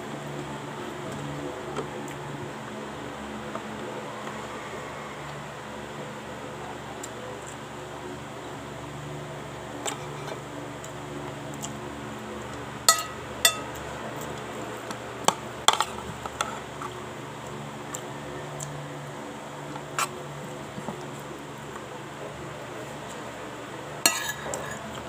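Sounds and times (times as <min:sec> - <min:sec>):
steady low hum: 0:00.0 - 0:25.0
spoon clinking on ceramic plate: 0:12.9 - 0:13.8.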